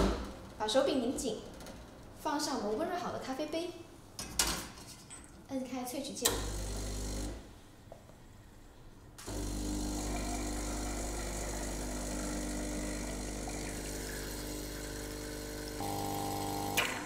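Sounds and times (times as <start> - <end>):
espresso machine pump humming: 6.5 - 7.3, 9.2 - 17.0.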